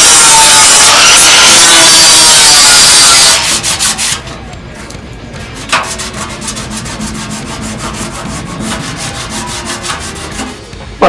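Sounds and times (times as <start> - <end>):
gloved hand rubbing steel: 3.3 - 10.8.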